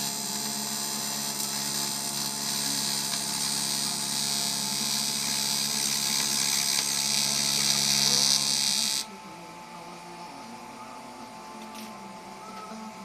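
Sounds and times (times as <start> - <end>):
welding arc buzzing: 0.0 - 9.1.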